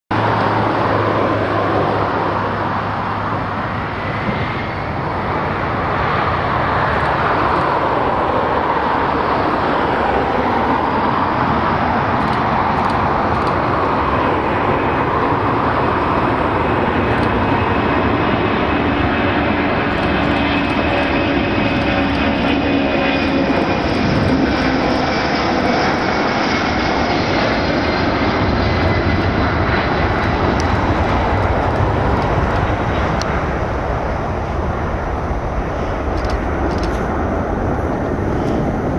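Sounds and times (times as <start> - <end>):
jet engines roaring with turbine whine: 0.1 - 38.9.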